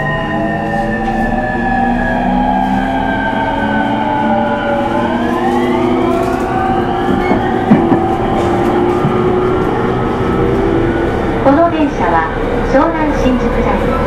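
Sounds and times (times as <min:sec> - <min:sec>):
train inverter whining: 0:00.0 - 0:14.0
sharp knocks: 0:07.1 - 0:08.1.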